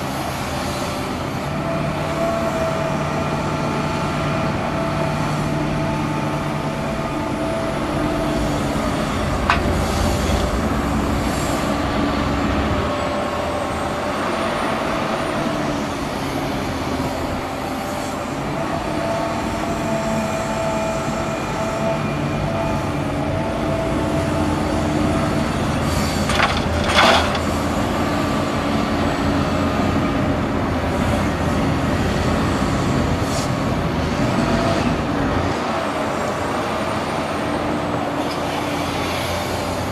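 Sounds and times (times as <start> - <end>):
excavator diesel engine running: 0.0 - 39.9
loud clatter: 26.2 - 27.5.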